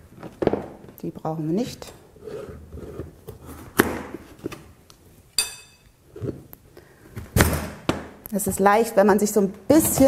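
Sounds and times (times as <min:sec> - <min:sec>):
ringing clink: 0:05.4 - 0:05.9.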